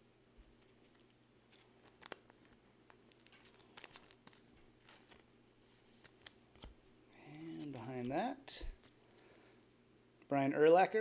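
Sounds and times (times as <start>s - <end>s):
low steady hum: 0.0s - 11.0s
trading cards clicking and sliding: 0.6s - 9.3s.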